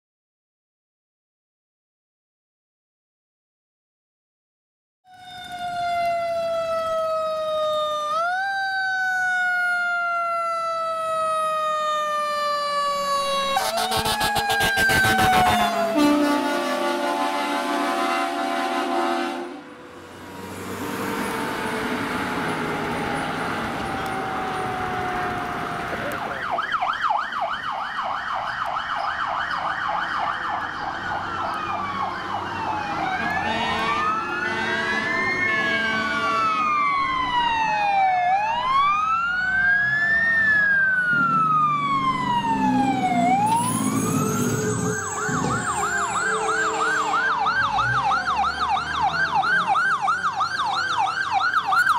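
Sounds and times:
siren winding down: 5.1 - 17.3, 19.7 - 51.9
electronic siren yelp and wail: 5.1 - 19.4, 21.3 - 51.9
air horn blast: 13.5 - 19.8, 33.2 - 36.6, 45.4 - 47.5.

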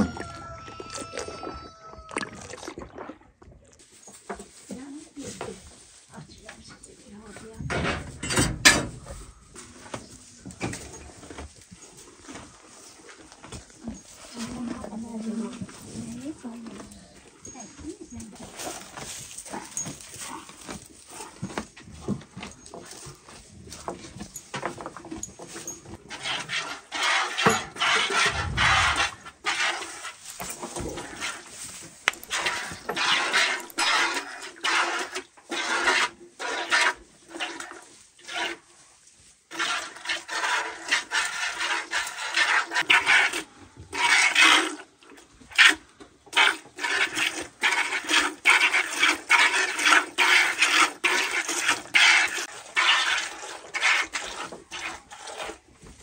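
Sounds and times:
milk squirting into plastic bucket: 0.2 - 3.8.

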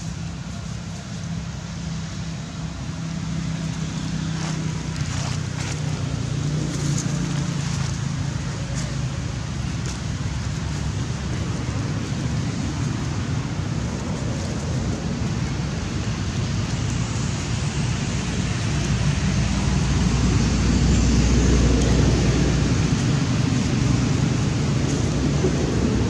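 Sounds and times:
wind buffeting microphone: 2.3 - 26.0.

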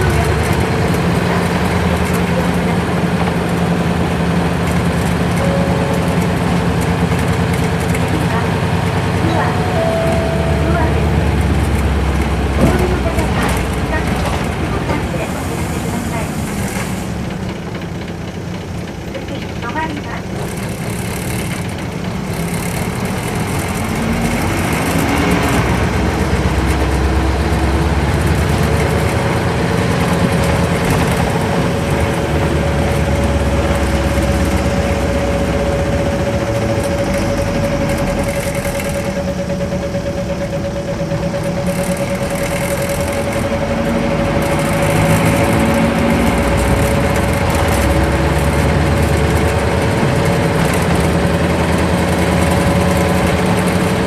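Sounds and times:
bus engine running: 0.0 - 54.0
steady whine: 2.1 - 17.8, 21.0 - 54.0.

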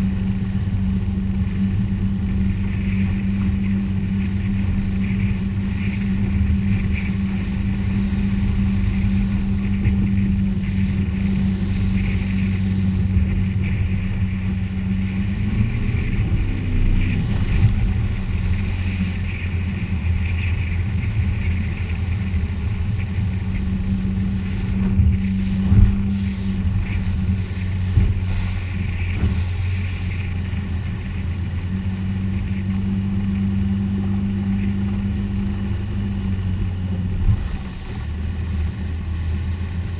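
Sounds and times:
motorboat engine running: 0.0 - 39.9
rush of wind and water: 0.0 - 39.9.

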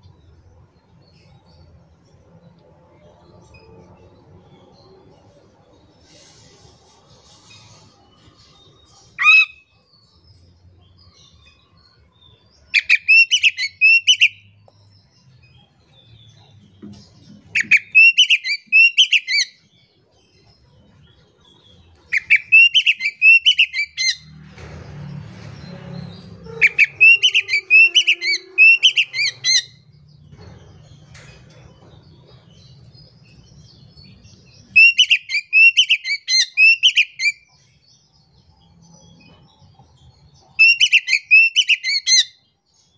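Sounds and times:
bird singing whistled notes: 12.2 - 14.5, 17.6 - 19.6, 22.0 - 24.1, 26.7 - 29.8, 34.6 - 37.6, 40.6 - 42.4.

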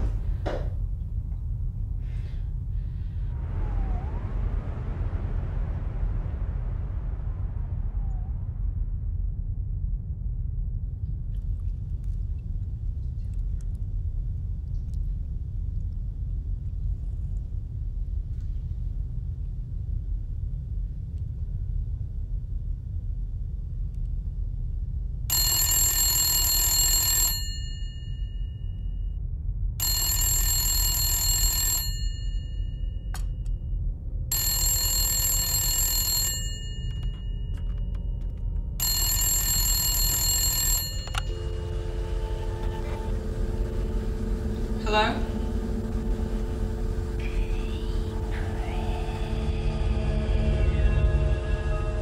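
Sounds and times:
steady low rumble: 0.0 - 25.4, 27.7 - 31.0, 32.0 - 52.0
telephone ringing: 25.3 - 28.4, 29.8 - 33.4, 34.3 - 44.7.

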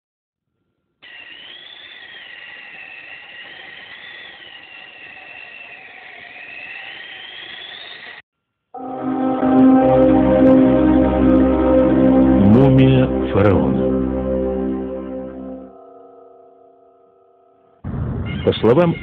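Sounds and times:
high wavering whistling tone: 1.1 - 8.2.

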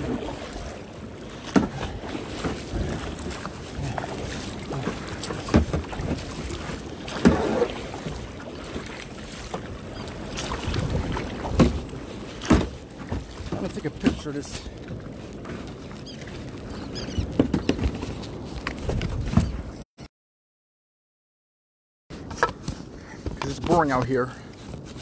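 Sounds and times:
water washing against kayak hull: 0.0 - 19.8, 22.1 - 25.0
wind on microphone: 10.5 - 12.0, 16.6 - 19.8.

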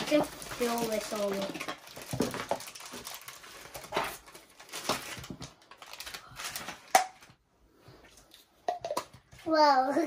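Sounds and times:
packaging rustling: 0.0 - 7.4.

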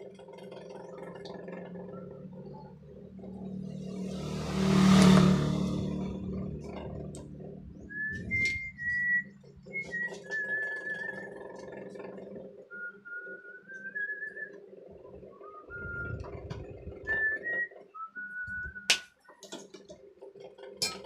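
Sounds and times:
person whistling a slow tune: 7.9 - 11.3, 12.7 - 14.6, 15.4 - 16.3, 17.0 - 19.0.

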